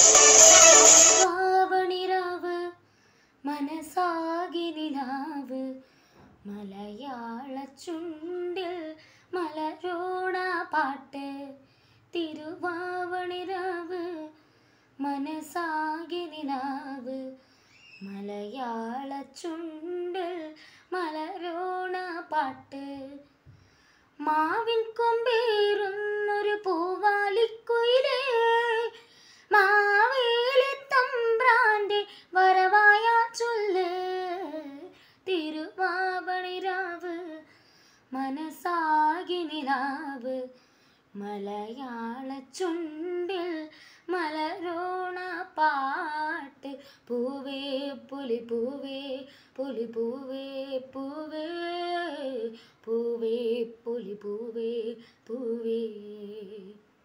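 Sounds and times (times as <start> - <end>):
child singing unaccompanied: 24.2 - 37.4.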